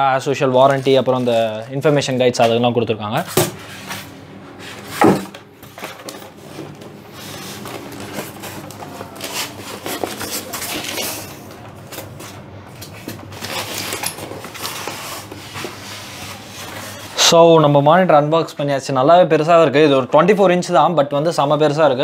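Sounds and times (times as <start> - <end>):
plastic bag crackling: 5.6 - 17.2
foam rubbing and scraping: 6.3 - 11.5, 13.0 - 17.3.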